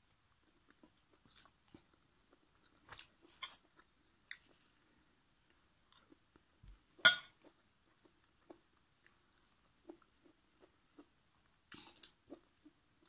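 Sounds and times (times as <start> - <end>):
soft chewing: 0.0 - 13.0
fork clinking on plate: 7.1 - 7.4.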